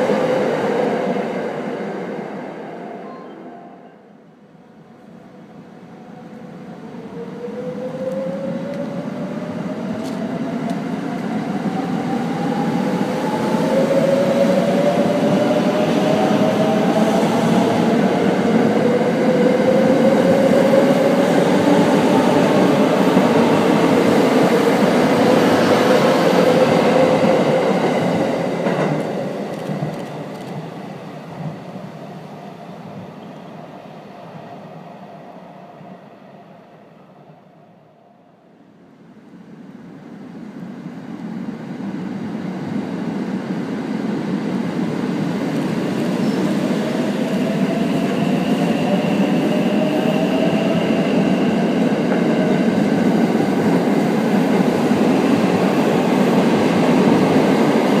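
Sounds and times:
train wheel and running noise: 7.9s - 33.4s.

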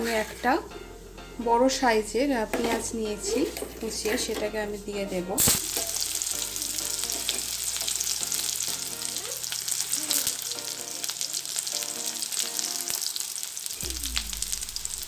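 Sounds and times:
onion sizzling in hot oil: 1.9s - 15.0s.

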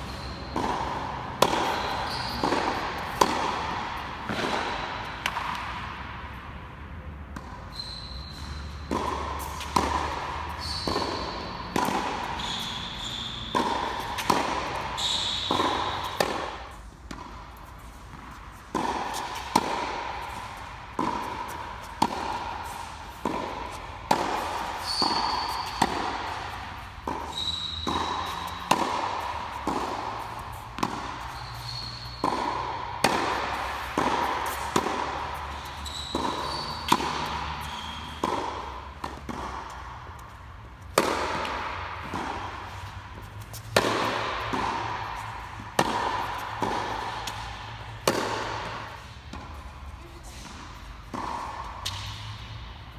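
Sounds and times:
tennis ball hits and bounces: 0.0s - 52.9s
short high squeaks: 1.7s - 2.4s, 7.7s - 8.8s, 10.5s - 11.5s, 12.3s - 14.2s, 15.0s - 16.2s, 24.4s - 25.9s, 27.3s - 28.6s, 31.2s - 32.2s, 35.5s - 36.9s.

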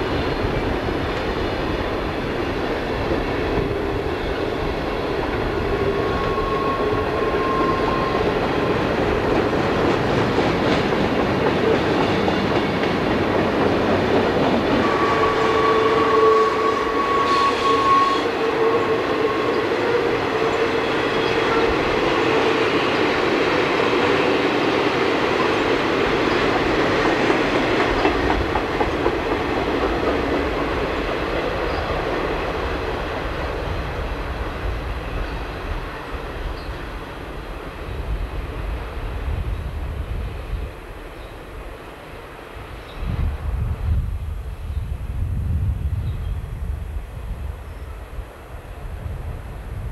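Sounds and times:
train wheel squeal: 3.4s - 9.5s, 14.6s - 23.1s, 27.3s - 29.1s, 29.8s - 32.2s, 35.0s - 37.0s.

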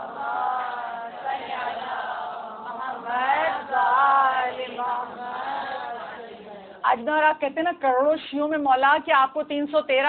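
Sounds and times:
women chanting in unison: 0.0s - 7.0s.

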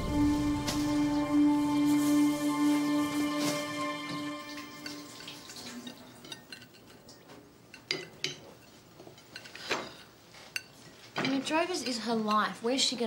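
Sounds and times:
background music: 0.0s - 5.9s
crockery and cutlery clinking: 3.2s - 12.6s.

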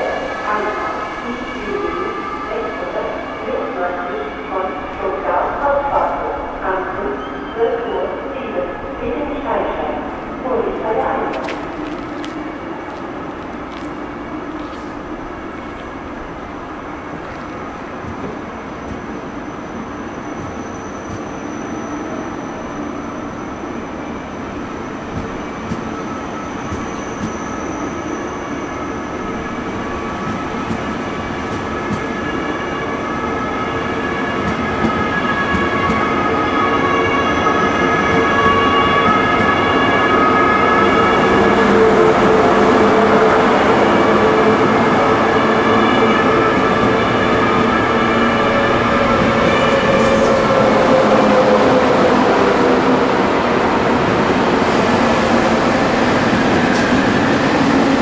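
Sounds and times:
train whine: 0.0s - 58.0s
train running gear rumble: 9.1s - 19.4s.

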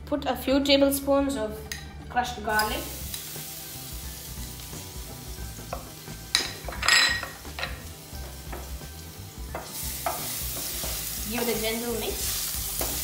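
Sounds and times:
garlic sizzling in oil: 2.5s - 13.0s
spoon clinking on dish: 6.3s - 7.8s.

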